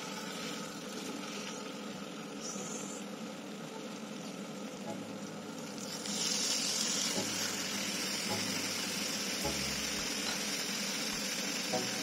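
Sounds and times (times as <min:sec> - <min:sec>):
meat sizzling in frying pan: 0:00.0 - 0:02.3, 0:05.2 - 0:12.0.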